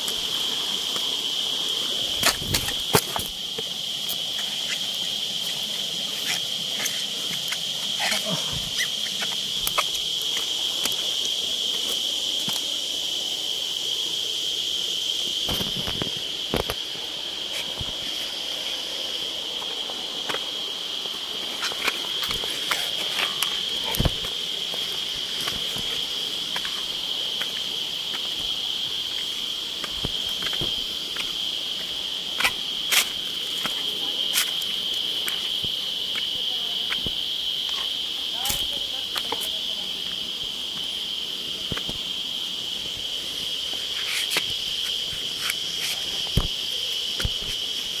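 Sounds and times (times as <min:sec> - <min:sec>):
footsteps on rock and dry leaves: 0:00.0 - 0:12.8, 0:19.7 - 0:35.6
insects droning: 0:00.0 - 0:48.0.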